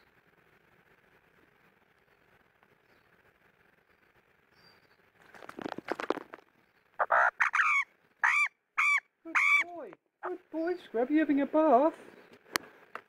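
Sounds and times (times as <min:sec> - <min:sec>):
magpie short calls: 0:07.0 - 0:10.4.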